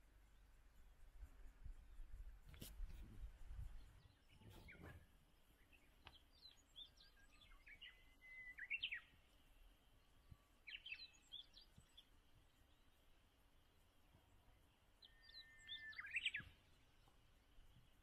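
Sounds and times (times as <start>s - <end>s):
songbird chirping and whistling: 5.6s - 9.3s, 10.6s - 12.1s, 15.0s - 16.8s.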